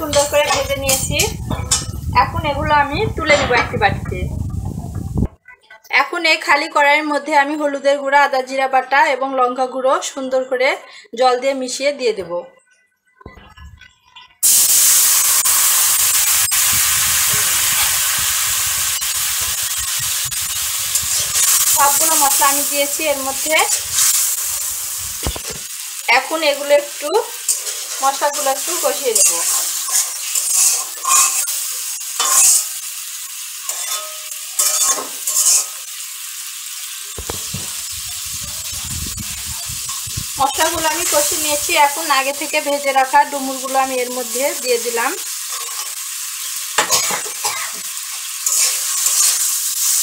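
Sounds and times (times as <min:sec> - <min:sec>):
metal spatula scraping and stirring: 0:00.0 - 0:02.1, 0:20.4 - 0:24.7, 0:27.4 - 0:32.8, 0:33.6 - 0:35.8, 0:37.2 - 0:42.1, 0:45.5 - 0:47.3, 0:48.4 - 0:49.5
spice paste sizzling in hot oil: 0:00.0 - 0:03.0, 0:14.4 - 0:50.0
oil popping: 0:37.2 - 0:41.1.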